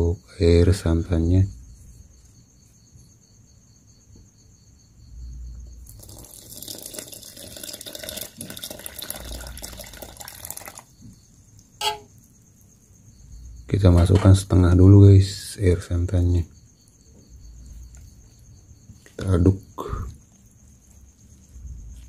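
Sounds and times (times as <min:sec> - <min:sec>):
liquid pouring and splashing: 0:05.8 - 0:10.9.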